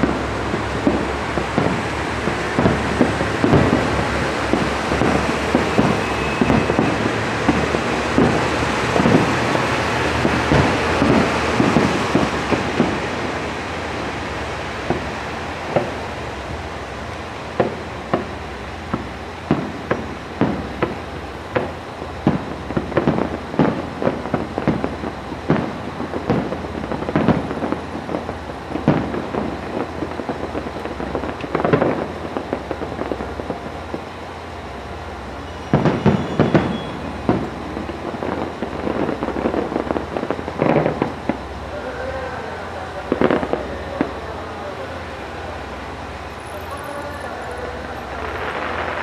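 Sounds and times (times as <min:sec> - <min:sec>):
fireworks bursting: 0:00.0 - 0:49.0.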